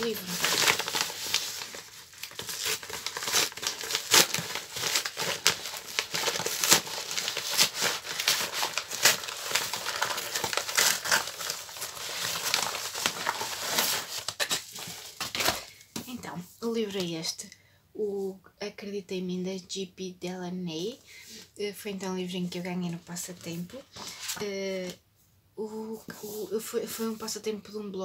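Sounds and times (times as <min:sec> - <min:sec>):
paper ripping: 0:00.0 - 0:15.7
paper envelope crinkling and rustling: 0:00.0 - 0:15.8.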